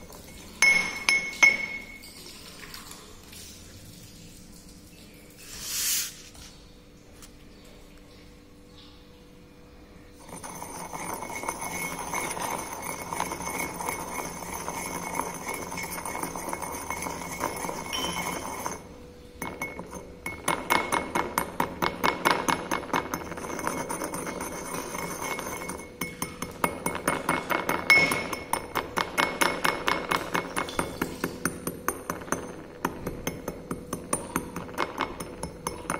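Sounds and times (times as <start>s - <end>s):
glass clinking on porcelain: 0.0s - 2.3s, 10.2s - 35.9s
pestle grinding in mortar: 10.2s - 18.8s, 19.4s - 35.9s.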